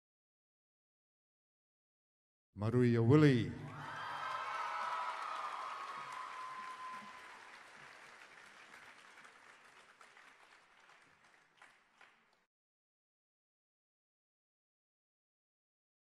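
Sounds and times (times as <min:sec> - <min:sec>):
crowd cheering: 0:03.5 - 0:12.3
audience applauding: 0:03.7 - 0:12.4.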